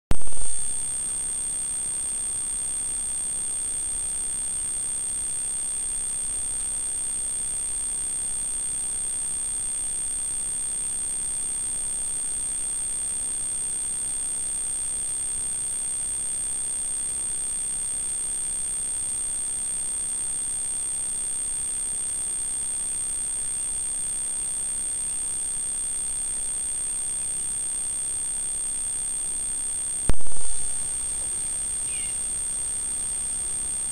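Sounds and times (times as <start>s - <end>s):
high-pitched electronic whine: 0.1s - 0.9s, 30.1s - 32.6s.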